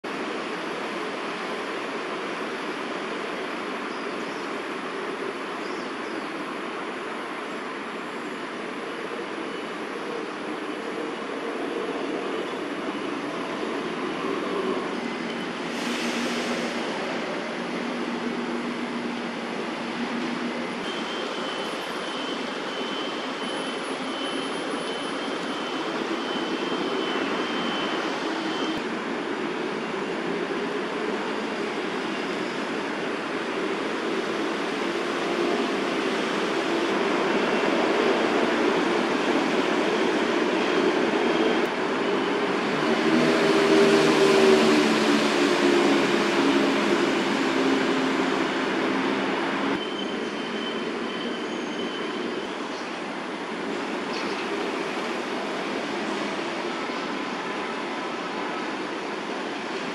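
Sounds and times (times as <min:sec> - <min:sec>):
city traffic noise: 0:00.0 - 0:59.9
loud vehicle passing: 0:42.5 - 0:49.7.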